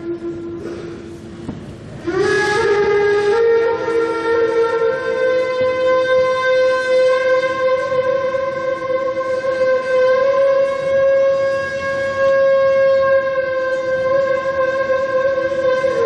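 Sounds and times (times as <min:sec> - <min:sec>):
reed flute long breathy note: 0:00.0 - 0:16.0.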